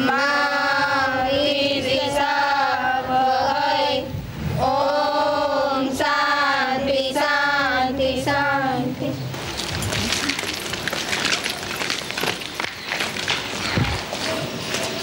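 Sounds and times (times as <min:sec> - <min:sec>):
girls singing together: 0:00.0 - 0:09.2.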